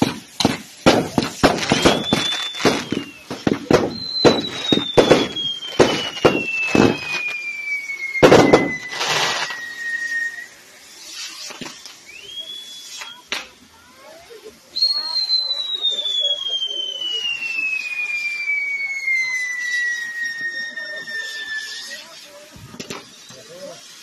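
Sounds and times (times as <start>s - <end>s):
fireworks bangs and crackles: 0.0s - 24.0s
high firework whistles: 0.0s - 24.0s.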